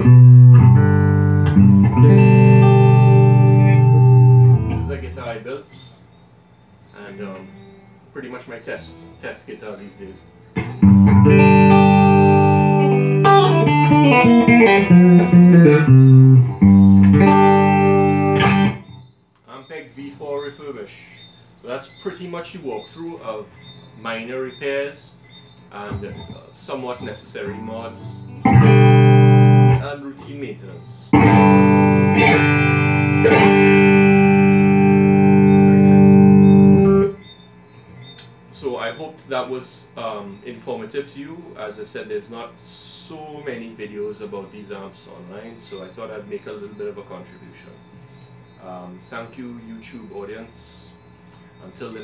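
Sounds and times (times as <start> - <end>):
electric guitar chords and notes: 0.0 - 5.2, 10.5 - 19.1, 27.4 - 29.9, 31.1 - 37.3.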